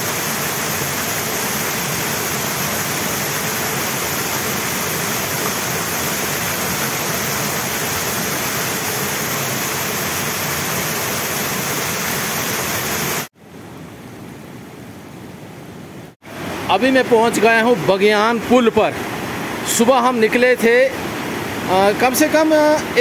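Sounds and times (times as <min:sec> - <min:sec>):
floodwater rushing down channel: 0:00.0 - 0:13.3.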